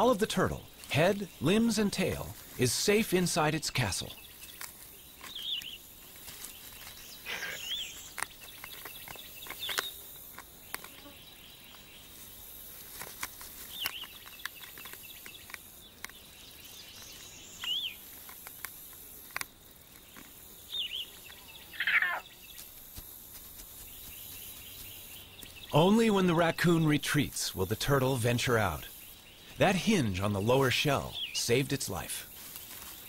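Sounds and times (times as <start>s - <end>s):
rustling in grass: 0.0s - 25.9s, 28.9s - 33.0s
faint insect hiss: 0.0s - 33.0s
claws scratching on a shell: 4.4s - 11.2s, 12.2s - 16.3s, 17.0s - 25.6s.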